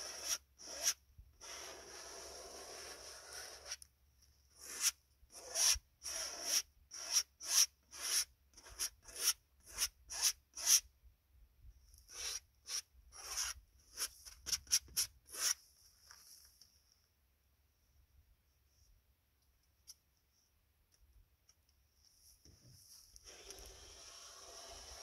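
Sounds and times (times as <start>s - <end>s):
paint brush scrubbing canvas: 22.9s - 25.0s.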